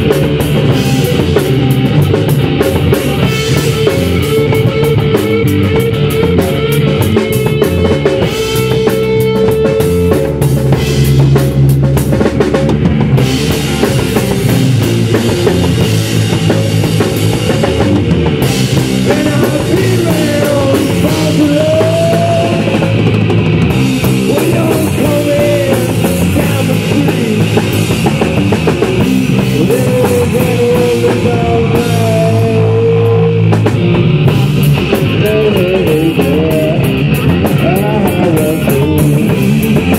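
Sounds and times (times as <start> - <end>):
high gliding guitar notes: 0.0 - 11.8
bass guitar: 0.0 - 39.9
drum kit: 0.0 - 39.9
electric guitar: 0.0 - 39.9.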